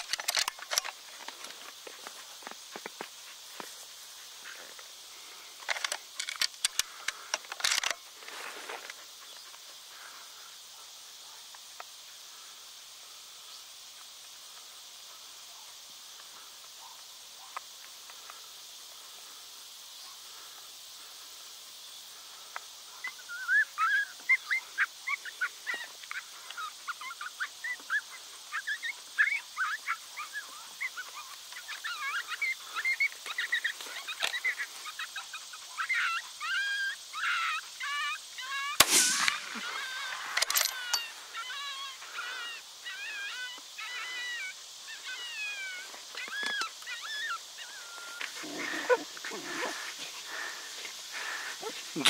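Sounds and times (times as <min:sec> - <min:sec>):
high insect hum: 0:00.0 - 0:52.0
animal yipping: 0:22.9 - 0:50.5
rifle bolt metallic clicks: 0:40.3 - 0:41.0.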